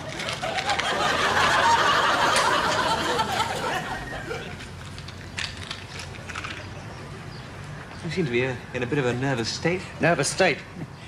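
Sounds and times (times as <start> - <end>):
studio audience laughing: 0.4 - 4.6.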